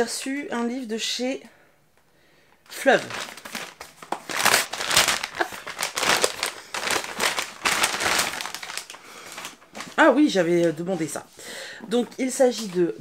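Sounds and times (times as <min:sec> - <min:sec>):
packaging rustling and crackling: 0:02.7 - 0:11.2.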